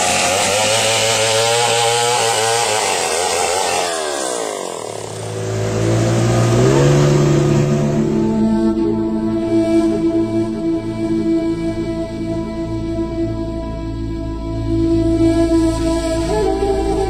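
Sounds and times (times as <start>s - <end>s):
small engine revving: 0.0s - 10.8s.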